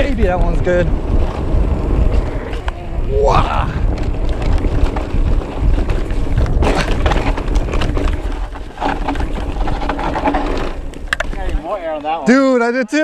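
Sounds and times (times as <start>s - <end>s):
wind on microphone: 0.0s - 12.0s
bike tyres rumbling on dirt: 0.0s - 12.3s
bike knocks and rattles: 3.6s - 12.2s.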